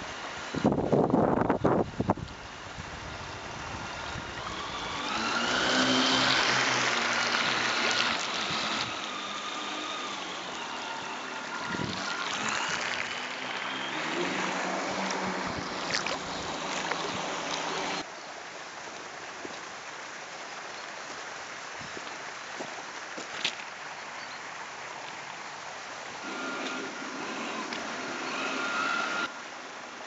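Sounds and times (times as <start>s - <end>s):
water wash of boat wake: 0.0s - 18.1s
model boat motor whine: 0.4s - 18.0s, 26.2s - 29.6s.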